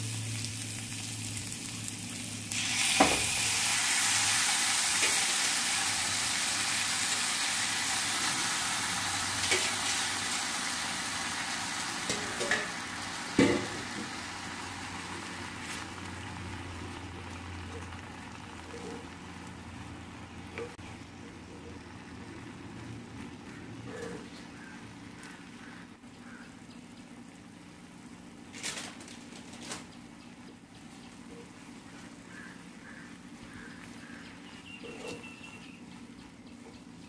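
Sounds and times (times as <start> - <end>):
food sizzling in hot oil: 0.0 - 18.7.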